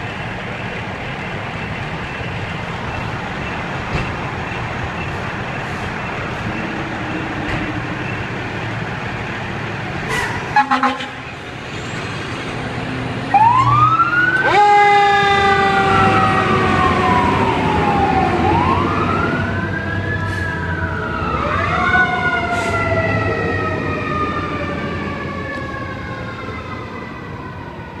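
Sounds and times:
fire engine siren wailing: 0.0s - 11.4s, 12.5s - 28.0s
air horn blasts: 10.1s - 11.2s.

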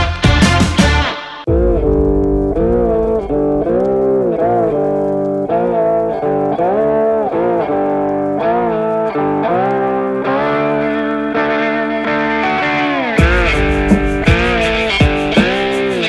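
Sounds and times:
guitar lead with bending notes: 0.0s - 16.0s.

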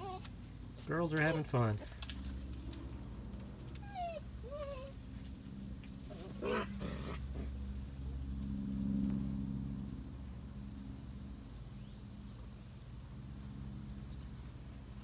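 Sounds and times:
puppy yelp: 0.0s - 0.3s, 3.8s - 5.0s
puppies whimpering: 0.0s - 2.0s, 3.7s - 5.0s
low steady hum: 0.0s - 15.0s.

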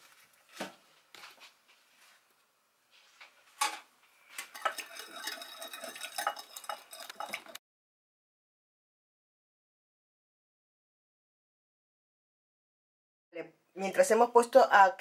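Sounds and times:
whisk rattling in glass bowl: 4.4s - 7.6s
glass clink: 4.6s - 7.6s.

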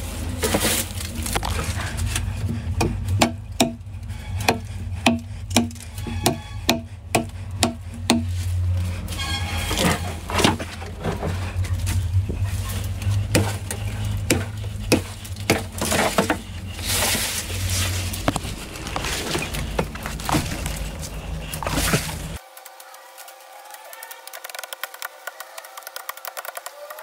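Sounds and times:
branches and leaves rustling: 0.0s - 6.4s, 7.3s - 26.4s
low steady hum: 0.0s - 22.5s
machete strikes on wood: 4.5s - 8.3s.

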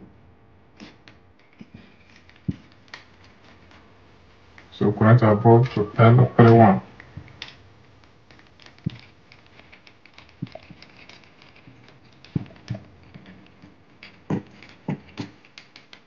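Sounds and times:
screwdriver clicks and taps on wires: 8.3s - 16.0s.

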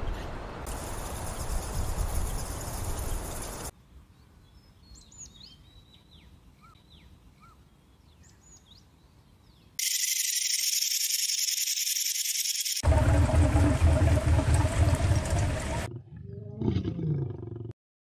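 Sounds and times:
small birds chirping: 0.7s - 10.2s.

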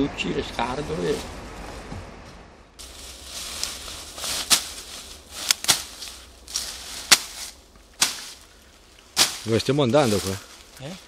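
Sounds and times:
vegetation rustling: 0.9s - 11.0s
sickle swishing through weeds: 2.8s - 11.0s.

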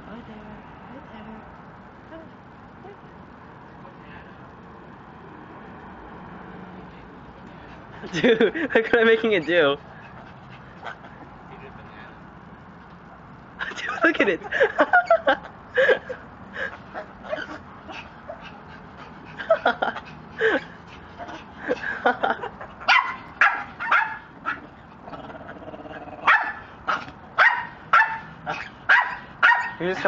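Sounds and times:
bark-like yips: 22.9s - 24.6s, 26.2s - 29.8s.

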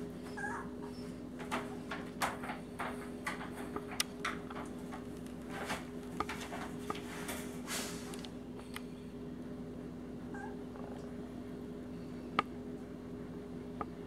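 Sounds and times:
puppies stirring on blanket: 0.0s - 8.2s.

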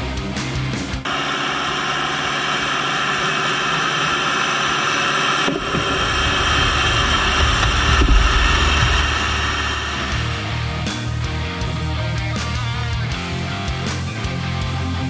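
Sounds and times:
bulldozer engine rumbling: 1.7s - 13.4s.

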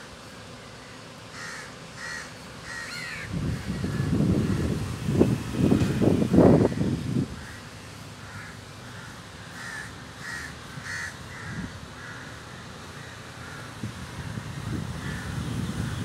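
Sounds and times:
crow cawing: 0.8s - 4.7s, 6.6s - 13.8s, 15.0s - 15.4s.

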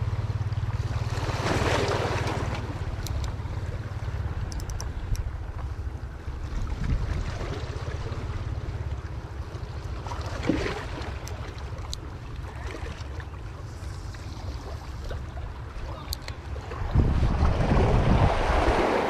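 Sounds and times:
waves lapping against rocks: 0.8s - 4.2s, 5.3s - 19.0s
wind buffeting microphone: 4.2s - 8.9s, 15.6s - 19.0s
faint clicks: 4.5s - 5.7s, 16.0s - 16.4s.

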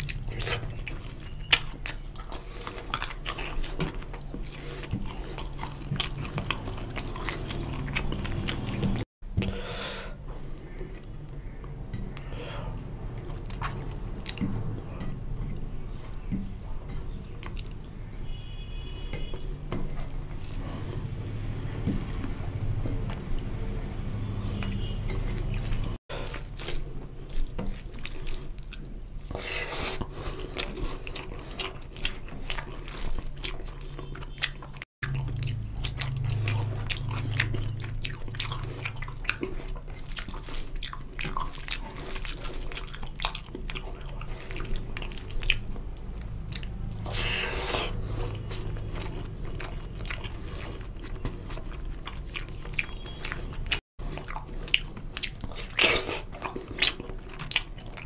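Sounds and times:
wet chewing and smacking: 0.0s - 9.6s, 10.2s - 58.0s
rice squelching in gravy: 15.8s - 22.5s, 24.5s - 34.0s.

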